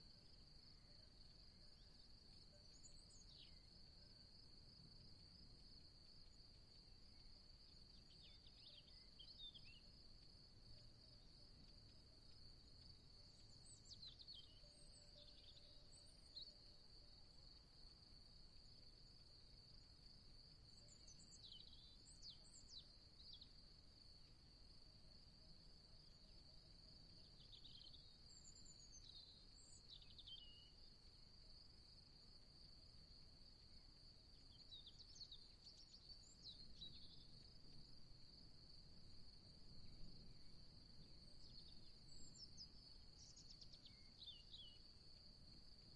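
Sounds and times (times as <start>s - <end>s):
small birds chirping: 27.2s - 30.8s.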